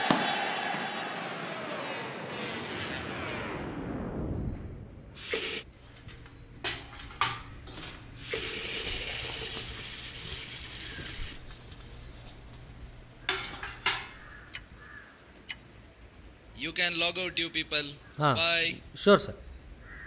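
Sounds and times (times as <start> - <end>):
dishes clinking: 13.2 - 14.3.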